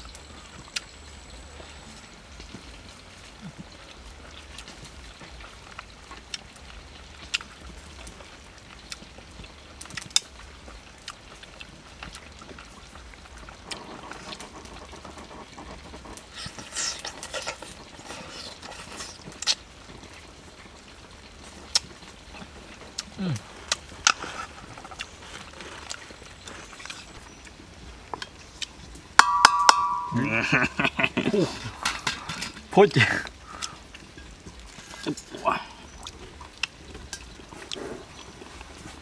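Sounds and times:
slurping and chewing: 1.6s - 29.0s, 30.2s - 39.0s.

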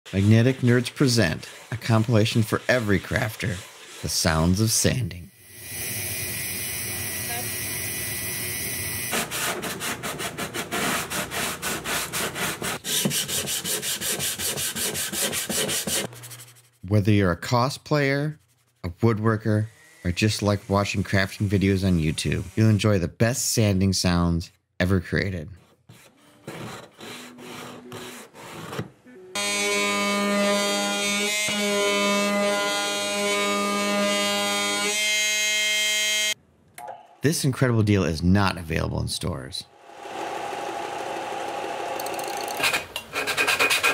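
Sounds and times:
sandpaper scraping back and forth: 0.1s - 4.8s, 9.1s - 17.0s, 18.1s - 22.9s, 25.6s - 35.0s, 42.6s - 43.9s
rotary sanding drum: 0.2s - 4.3s, 9.2s - 16.8s
power sander buzzing: 5.4s - 9.4s, 19.4s - 22.8s.

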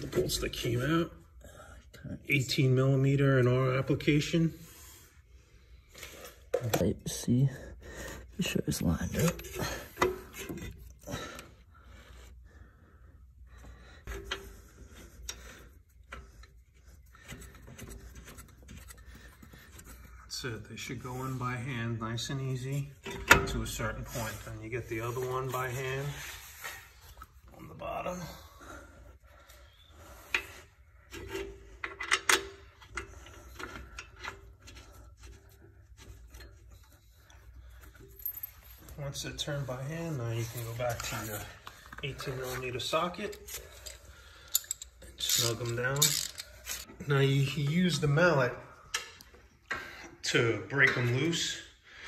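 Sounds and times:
metal clicks and scraping: 30.2s - 38.9s, 40.7s - 47.0s.

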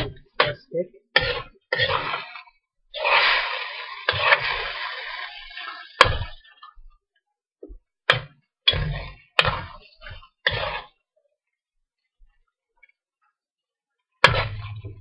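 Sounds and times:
spoon scraping a wok: 1.2s - 6.4s, 8.8s - 10.9s.

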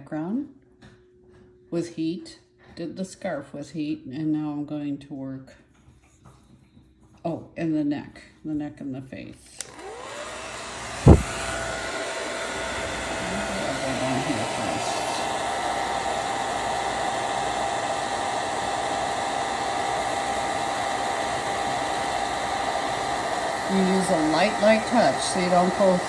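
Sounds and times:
heat tool blowing hot air: 9.5s - 26.0s
sharp knock: 11.1s - 11.3s.

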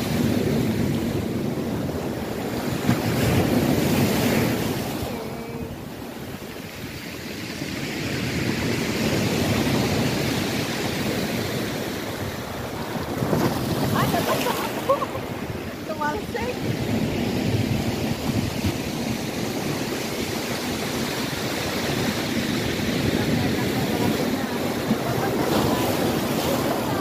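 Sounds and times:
surf breaking on shingle beach: 0.0s - 27.0s
wind buffeting microphone: 0.0s - 27.0s.

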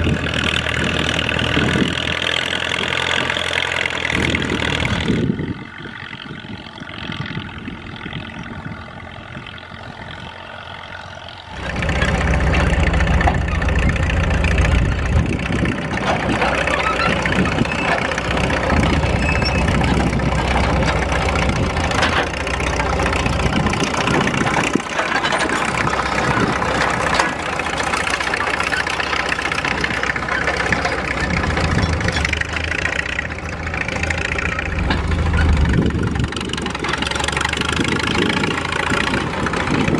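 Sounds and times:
diesel engine running: 0.0s - 39.9s.

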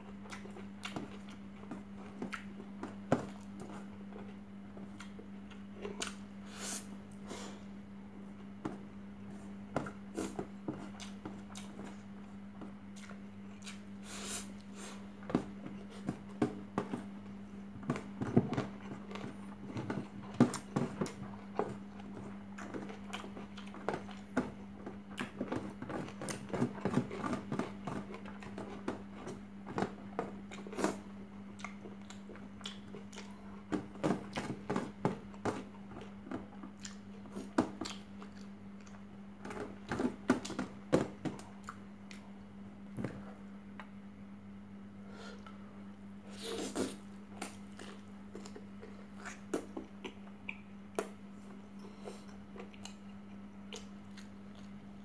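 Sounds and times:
steady low hum: 0.0s - 55.0s
chewing and mouth smacks: 0.1s - 2.6s, 10.9s - 12.0s, 12.9s - 13.9s, 31.6s - 33.6s, 36.0s - 37.1s, 37.8s - 39.1s, 46.7s - 55.0s.

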